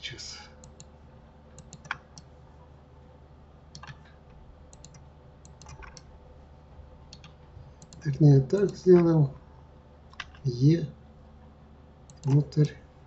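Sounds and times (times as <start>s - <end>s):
faint steady hum: 0.0s - 13.0s
mouse and keyboard clicks: 1.6s - 2.3s, 3.7s - 4.1s, 4.7s - 6.1s, 7.1s - 9.1s, 12.1s - 12.5s.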